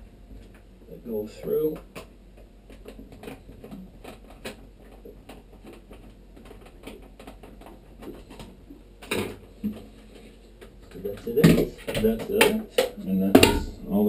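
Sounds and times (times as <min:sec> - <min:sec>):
loud knock: 0:13.3 - 0:13.8.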